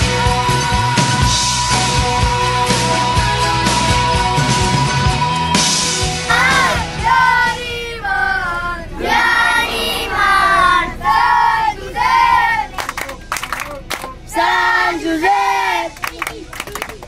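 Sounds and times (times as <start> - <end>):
children singing in unison: 6.3 - 12.7
sharp claps: 12.7 - 14.2, 15.9 - 17.0.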